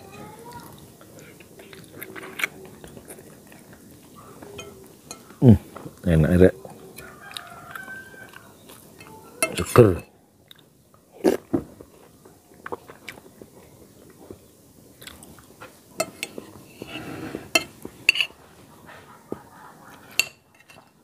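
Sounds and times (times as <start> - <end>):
person chewing: 0.5 - 6.0, 6.6 - 9.6, 10.4 - 18.3
spoon tapping against plate: 4.6 - 5.3, 16.0 - 16.4, 20.2 - 21.0.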